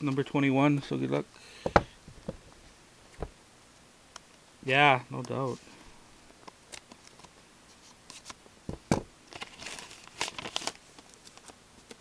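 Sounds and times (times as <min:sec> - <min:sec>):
paper rustling and crinkling: 0:09.3 - 0:12.0.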